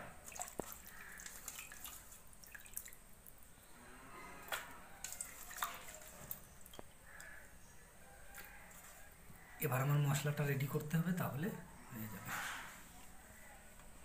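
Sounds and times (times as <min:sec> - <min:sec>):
water swishing and splashing: 0:00.0 - 0:03.4, 0:04.3 - 0:06.9.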